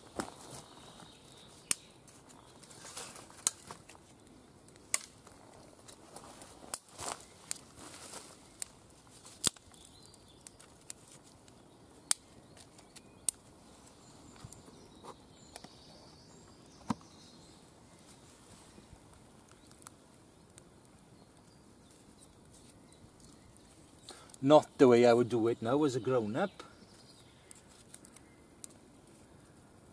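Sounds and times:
faint steady hiss: 0.0s - 29.9s
twig fire crackling: 0.0s - 29.9s
sharp pops of fire: 3.1s - 4.0s, 4.7s - 7.7s, 8.6s - 11.0s, 12.0s - 13.5s.

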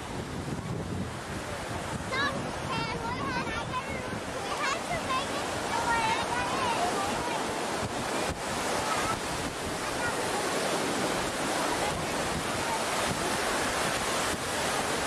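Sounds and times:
ocean surf on a beach: 0.0s - 15.0s
wind buffeting microphone: 0.0s - 15.0s
faint distant voices: 0.5s - 15.0s.

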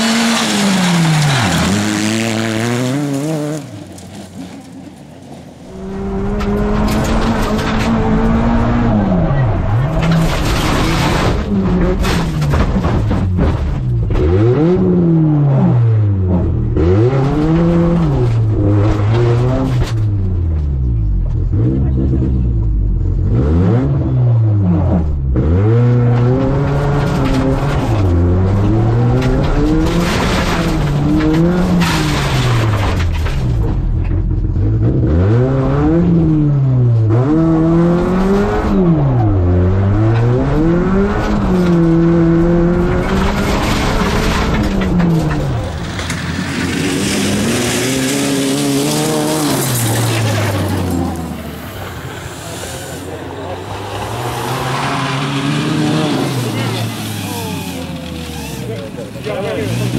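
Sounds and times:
car sliding on gravel: 0.0s - 5.8s, 42.8s - 59.9s
rally car engine revving: 0.0s - 59.9s.

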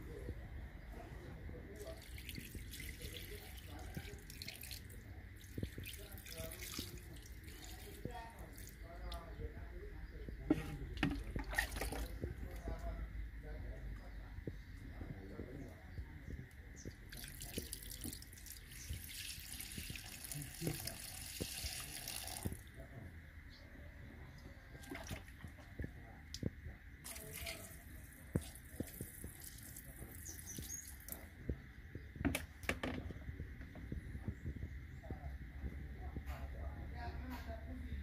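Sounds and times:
small knocks and drips: 1.7s - 9.4s, 10.3s - 13.0s, 14.4s - 22.9s, 24.7s - 37.7s
water running and splashing: 1.8s - 8.8s, 17.0s - 22.7s, 24.8s - 25.8s, 27.0s - 31.3s.

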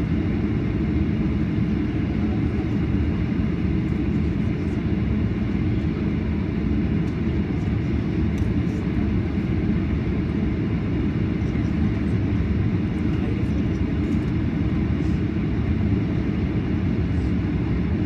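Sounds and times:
aircraft cabin engine rumble: 0.0s - 18.0s.

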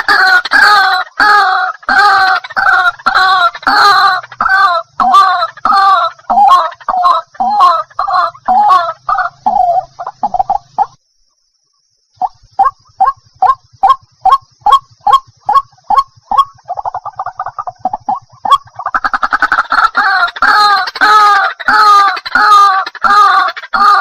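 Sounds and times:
waterhen calling: 0.0s - 11.0s, 12.2s - 24.0s.

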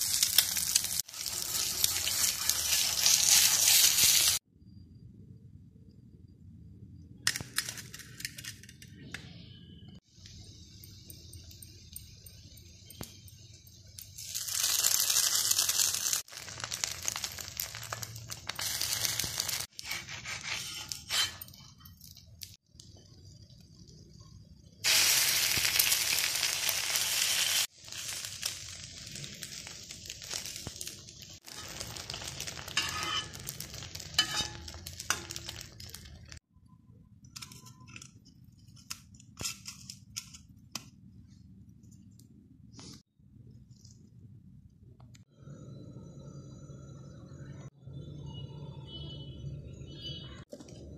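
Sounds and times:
egg sizzling on hot griddle: 0.0s - 4.5s, 10.2s - 36.4s
steel spoon scraping and clinking: 19.1s - 22.4s, 31.5s - 36.3s.

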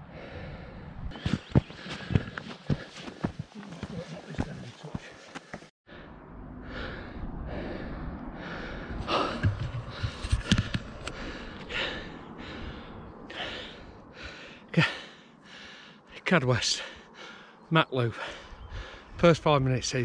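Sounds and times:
wind rumbling on microphone: 0.0s - 2.4s, 5.9s - 14.6s, 18.4s - 19.9s
man panting hard: 0.0s - 16.1s, 16.8s - 19.2s.

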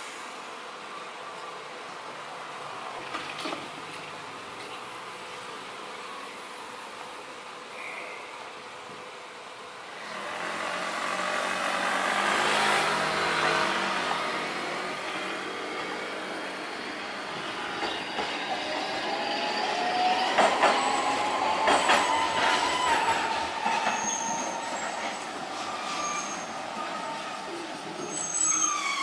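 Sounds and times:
tram running rumble: 8.9s - 28.2s.

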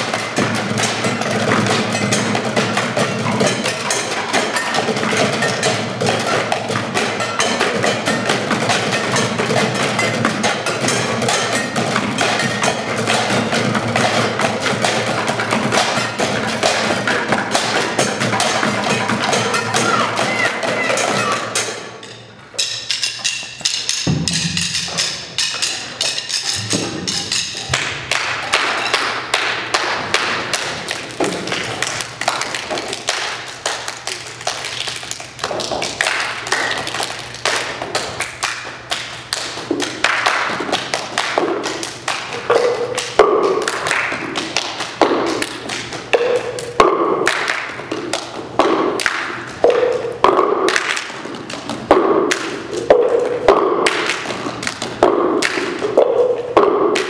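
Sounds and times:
percussive knocks: 0.0s - 33.3s, 39.3s - 57.0s
stick taps: 0.1s - 34.2s, 37.5s - 57.0s
hand claps: 15.6s - 57.0s
plastic cups knocked on floor: 38.9s - 57.0s.

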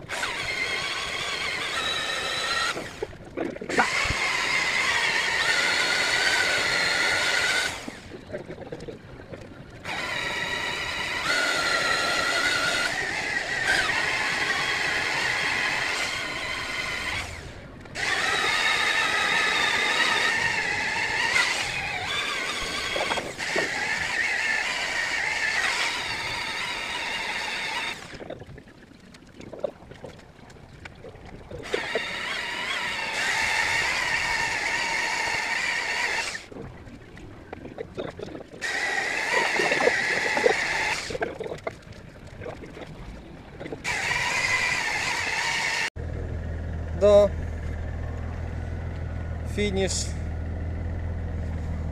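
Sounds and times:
electric car polishers whining: 0.0s - 3.0s, 3.8s - 8.0s, 9.9s - 28.2s, 31.6s - 36.5s, 38.6s - 41.2s, 43.8s - 46.0s.

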